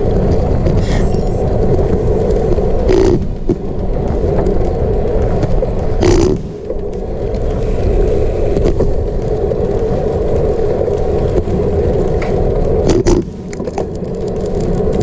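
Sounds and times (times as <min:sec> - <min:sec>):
bike tyres rolling on asphalt: 0:00.0 - 0:15.0
wind rumble on microphone: 0:00.0 - 0:15.0.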